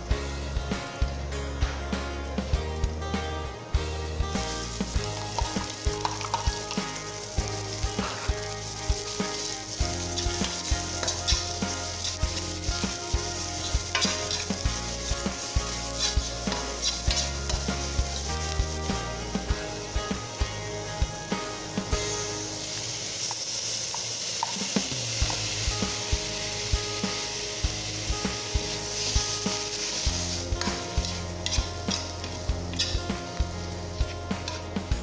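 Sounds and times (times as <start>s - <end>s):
garlic and onions sizzling in oil: 0.0s - 35.0s
metal ladle scraping and tapping pan: 5.3s - 6.9s, 13.7s - 14.6s, 29.8s - 33.0s.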